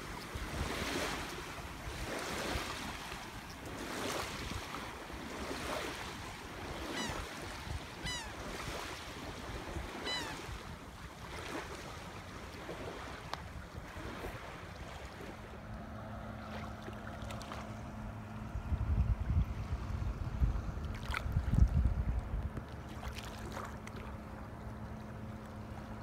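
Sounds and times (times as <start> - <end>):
small waves washing on beach: 0.0 - 18.6, 20.7 - 26.0
low motor hum: 0.0 - 26.0
bird calls: 6.9 - 7.3, 8.0 - 8.4, 10.0 - 10.5
wind on microphone: 18.5 - 22.7.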